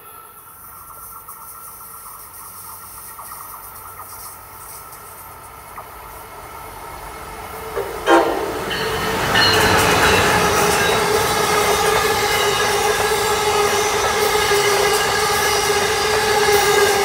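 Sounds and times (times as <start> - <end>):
train rumble and wheel clatter: 0.0 - 17.0
train horn: 7.8 - 17.0.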